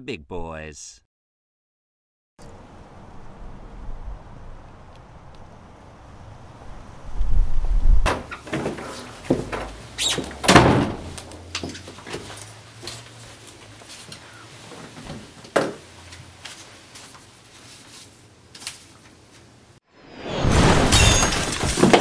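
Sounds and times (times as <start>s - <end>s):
door shutting with a thump: 8.0s - 11.2s
crash with shattering glass: 20.3s - 22.0s.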